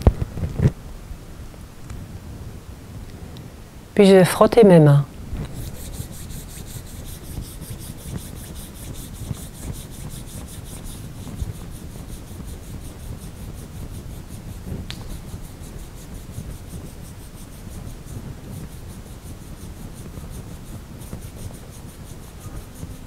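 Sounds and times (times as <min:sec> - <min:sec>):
palms rubbing together: 0:05.4 - 0:23.0.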